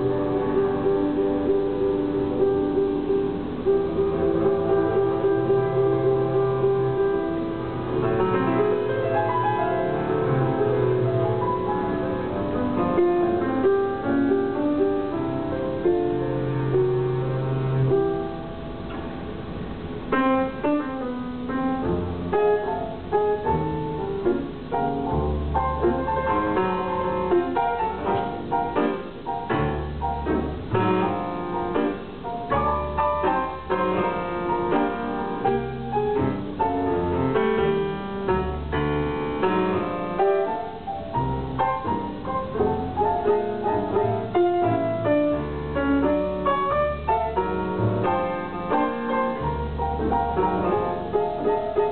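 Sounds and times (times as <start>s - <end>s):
grand piano playing: 0.0s - 51.9s.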